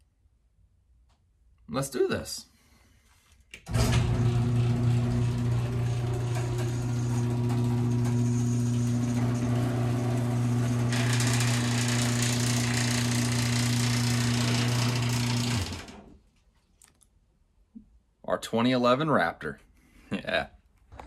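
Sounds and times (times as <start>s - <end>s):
garage door opener motor hum: 3.6s - 16.2s.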